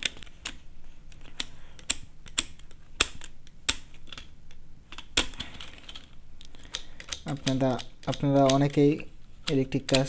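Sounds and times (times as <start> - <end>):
screwdriver clicking on plastic: 6.8 - 10.0.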